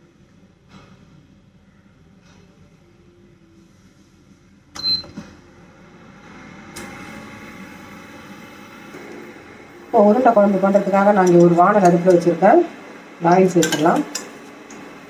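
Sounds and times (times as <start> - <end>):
cooling fan whirring: 0.0 - 15.0
high electronic beep: 4.8 - 5.2.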